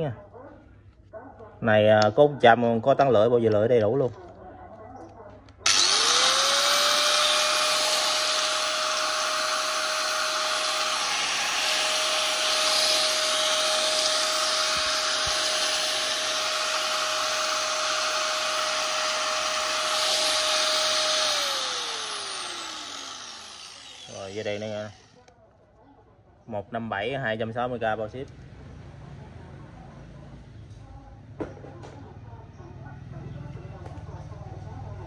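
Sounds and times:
angle grinder whining: 5.6s - 25.2s.

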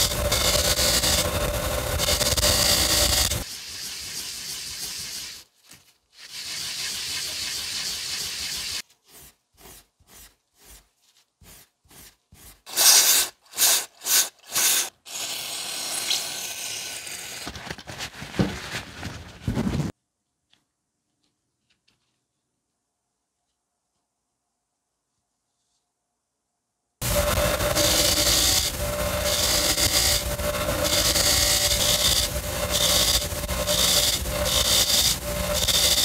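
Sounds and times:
metal part scrubbing on abrasive pad: 0.0s - 5.5s, 6.2s - 10.8s, 27.0s - 36.0s.

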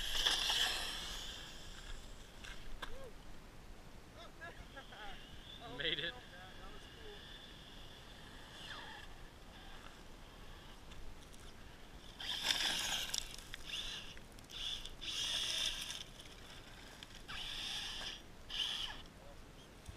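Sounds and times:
toy truck motor bursts: 0.0s - 2.2s, 6.8s - 10.8s, 12.1s - 16.2s, 17.2s - 19.1s
tyres scrabbling on gravel: 12.2s - 14.5s.

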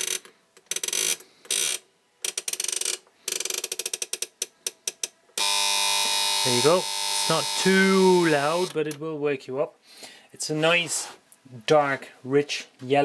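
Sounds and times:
alarm clock buzzing: 5.4s - 8.8s.

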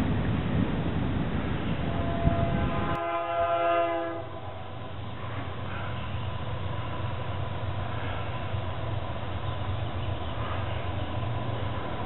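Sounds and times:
train rumbling: 0.0s - 12.0s
distant locomotive air horn: 1.8s - 6.2s.

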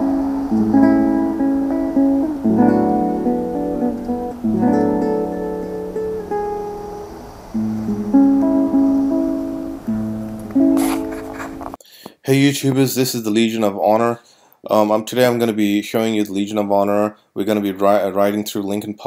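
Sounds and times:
strummed guitar chords: 0.0s - 11.8s.

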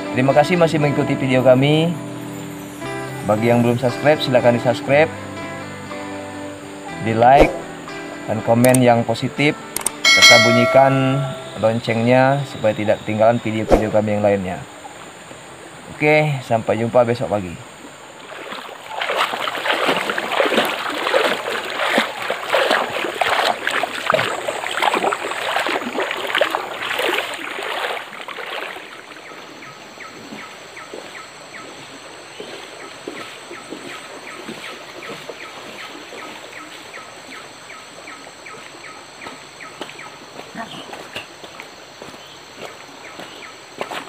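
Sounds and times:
steady high hum: 0.0s - 44.0s
water splashing in a stream: 17.8s - 41.8s.

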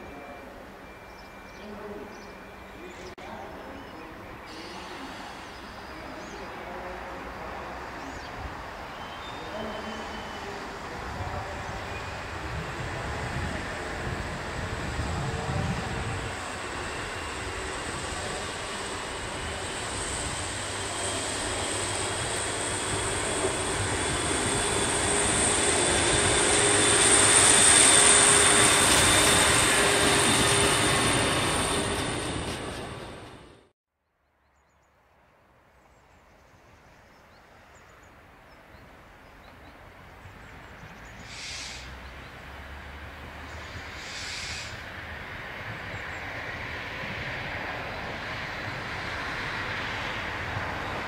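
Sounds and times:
train diesel engine: 0.0s - 33.7s, 41.0s - 51.0s
train wheels on rails: 9.7s - 33.7s, 43.2s - 51.0s
short bursts of hiss: 41.3s - 41.9s, 43.9s - 44.8s.

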